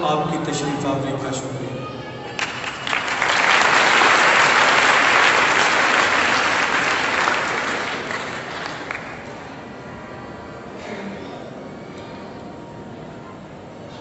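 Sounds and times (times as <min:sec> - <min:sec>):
congregation applauding: 0:02.3 - 0:09.6.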